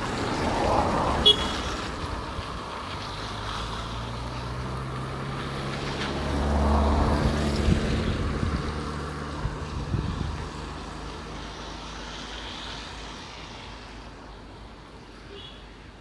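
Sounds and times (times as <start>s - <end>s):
wind on microphone: 6.7s - 12.1s.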